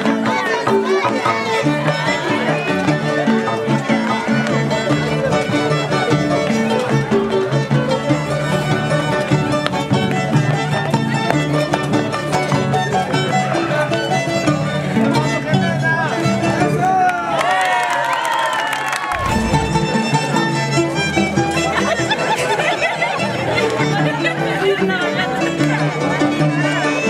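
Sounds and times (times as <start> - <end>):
violin melody: 0.0 - 16.4, 19.2 - 27.0
harp bass notes: 19.1 - 20.7.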